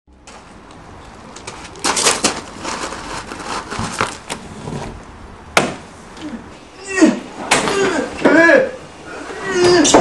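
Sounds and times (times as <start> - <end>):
clothes rustling and scraping: 0.3 - 5.1.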